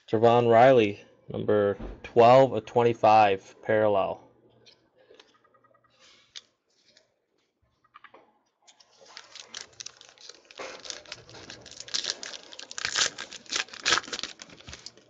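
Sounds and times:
foil wrapper tearing and crinkling: 8.9 - 15.0.

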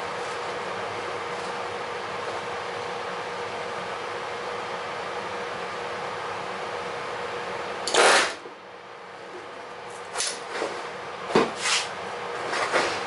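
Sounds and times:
pneumatic rivet gun burst: 7.9 - 8.4.

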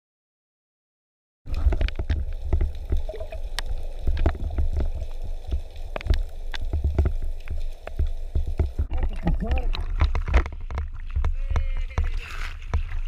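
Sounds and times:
sharp underwater clicks and crackles: 1.5 - 13.0
underwater rumble of moving water: 1.5 - 13.0.

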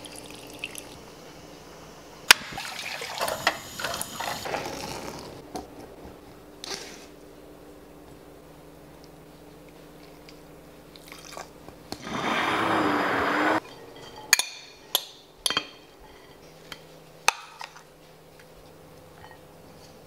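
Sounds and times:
stick blender running: 12.0 - 13.6.

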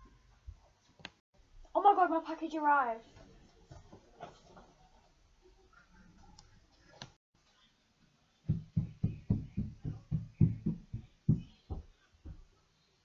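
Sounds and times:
footsteps on a staircase: 8.5 - 12.5.

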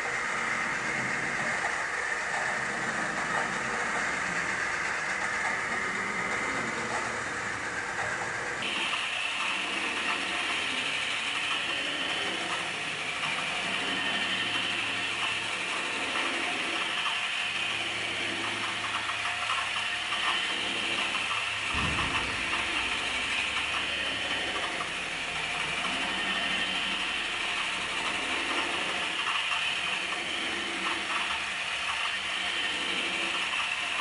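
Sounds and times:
drawing machine whirring and clicking: 0.0 - 34.0
low bump: 21.7 - 23.5.

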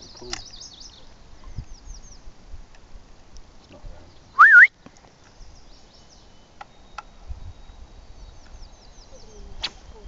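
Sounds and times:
loud short rising whistle: 4.4 - 4.7
faint high chirping: 5.2 - 10.0.

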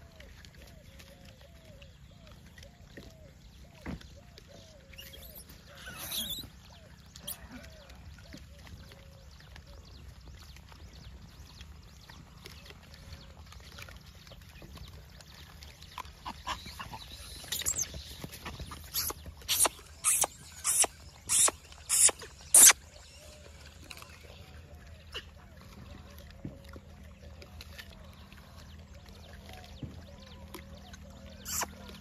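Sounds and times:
monkeys making harsh calls: 5.0 - 6.5, 16.3 - 17.8, 18.7 - 22.8, 31.4 - 31.8.

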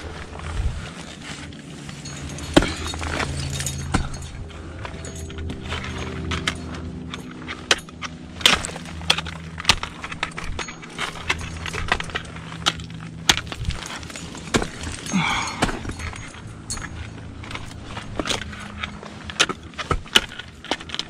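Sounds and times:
climbing hardware clinking: 0.0 - 21.0
ice axes striking ice: 2.1 - 4.4, 7.5 - 16.9, 17.6 - 21.0.

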